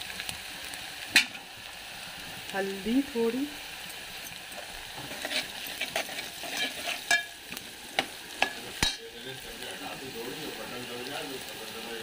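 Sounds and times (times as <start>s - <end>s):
onions sizzling in oil: 0.0s - 12.0s
metal spoon scraping a pot: 4.6s - 7.4s.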